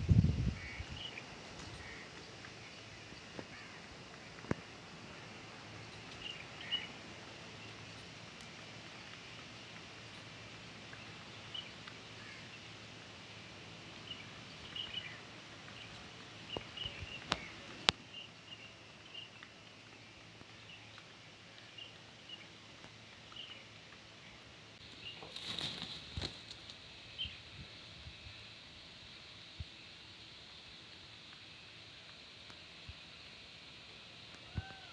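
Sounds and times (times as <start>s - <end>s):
birds chirping: 0.1s - 27.6s.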